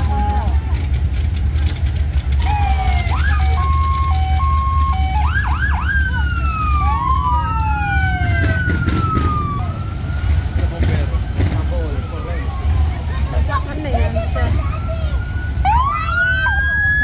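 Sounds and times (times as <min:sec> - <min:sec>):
electronic siren: 0:02.4 - 0:10.7.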